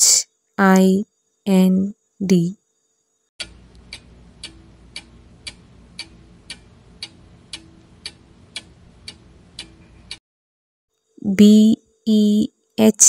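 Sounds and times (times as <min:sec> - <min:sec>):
faint steady hum: 0:00.0 - 0:10.2
clock ticking: 0:03.4 - 0:10.2.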